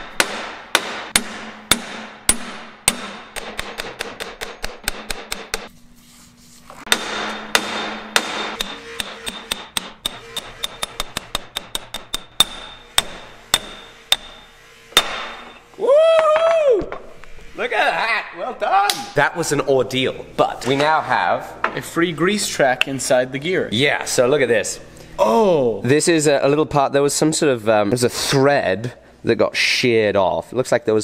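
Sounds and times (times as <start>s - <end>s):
hammer striking steel bar: 0.0s - 5.7s, 6.9s - 15.7s.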